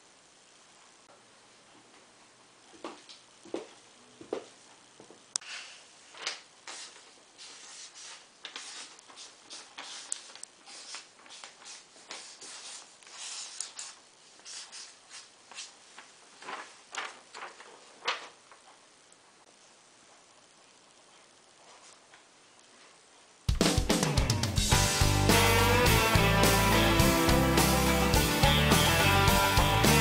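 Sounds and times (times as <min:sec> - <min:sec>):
paper handling: 0:06.1 - 0:18.8
marker scratching on paper: 0:06.7 - 0:15.8.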